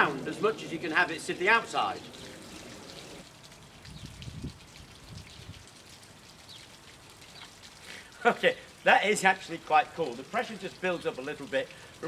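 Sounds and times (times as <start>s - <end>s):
water trickling through pipe: 0.0s - 12.0s.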